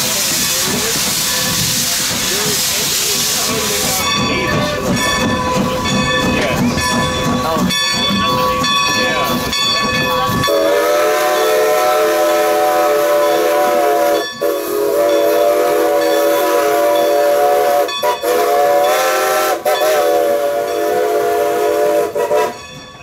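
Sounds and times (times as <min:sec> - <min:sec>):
steam whistle blowing chord: 0:10.5 - 0:22.6.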